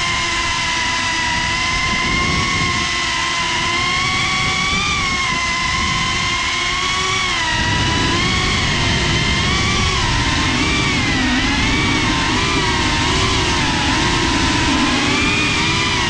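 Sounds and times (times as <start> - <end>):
drone motors whining: 0.0 - 16.0
wind rumble on microphone: 0.0 - 16.0.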